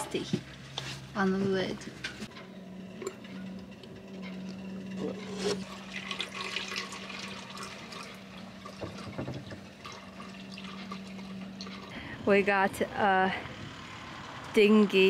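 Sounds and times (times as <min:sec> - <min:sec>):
steady low hum: 0:00.0 - 0:15.0
oil pouring into plastic bottle: 0:05.6 - 0:11.4.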